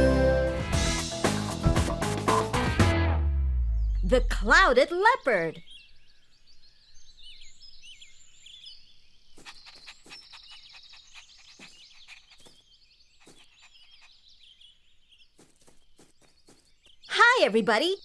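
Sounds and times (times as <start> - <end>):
birds chirping and trilling: 3.6 - 18.0.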